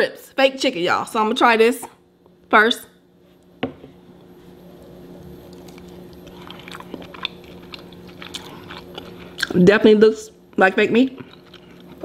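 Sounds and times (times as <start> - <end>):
chewing with small clicks: 5.5 - 9.6, 11.2 - 12.0.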